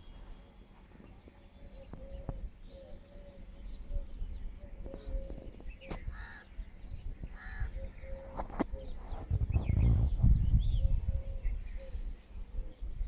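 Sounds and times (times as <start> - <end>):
crow cawing: 6.1 - 6.5, 7.4 - 7.7.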